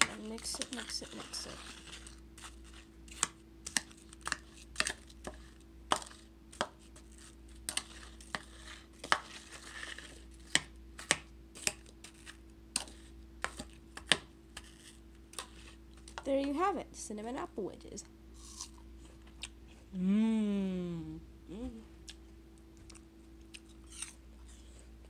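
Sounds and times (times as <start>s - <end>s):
spoon scraping bowl: 0.0s - 6.2s.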